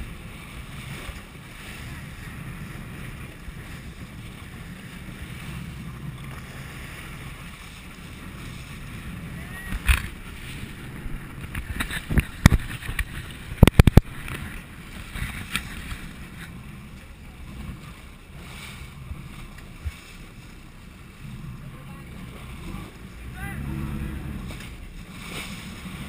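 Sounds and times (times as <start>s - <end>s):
wind on microphone: 0.0s - 20.2s
boat engine rumble: 0.0s - 26.0s
water rushing against hull: 0.0s - 26.0s.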